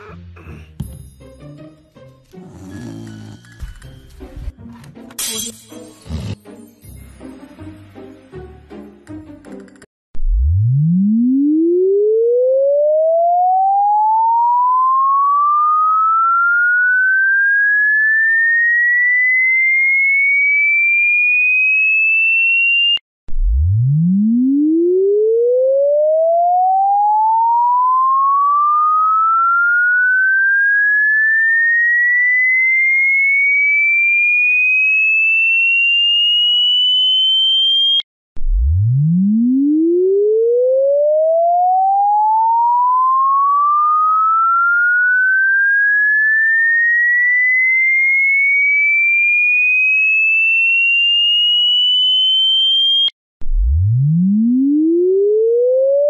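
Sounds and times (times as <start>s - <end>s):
rising electronic tone sweep: 10.2s - 19.6s, 23.3s - 32.6s, 37.6s - 47.9s.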